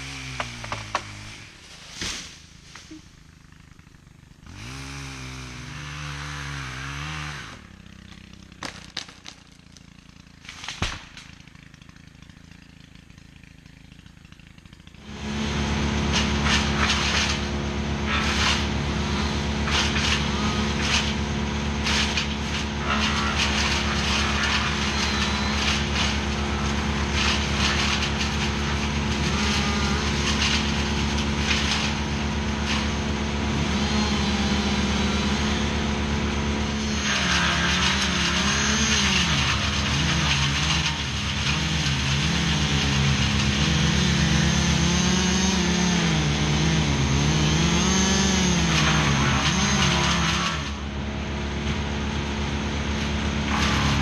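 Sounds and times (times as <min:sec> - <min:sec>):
engine revving: 0:00.0 - 0:09.1, 0:09.8 - 0:54.0
wood chipper engine running: 0:00.0 - 0:54.0
wood cracking and snapping: 0:00.3 - 0:01.2, 0:07.9 - 0:14.9, 0:16.1 - 0:18.8, 0:19.4 - 0:33.2, 0:47.6 - 0:50.8.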